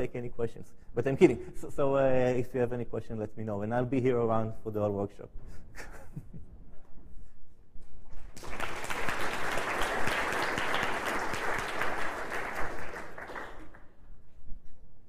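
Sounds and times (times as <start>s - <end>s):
audience applauding: 8.2s - 13.9s.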